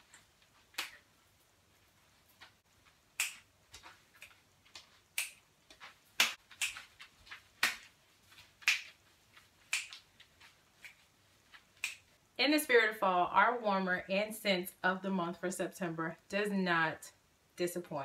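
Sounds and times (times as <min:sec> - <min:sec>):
hands clapping: 0:07.6 - 0:07.9, 0:08.6 - 0:09.0, 0:09.7 - 0:10.0.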